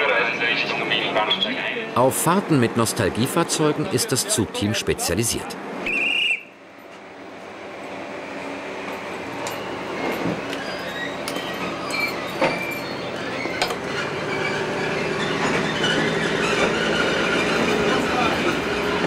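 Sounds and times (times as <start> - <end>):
diesel railcar running: 0.0 - 19.0
wheel clicks and squeals: 9.4 - 18.6.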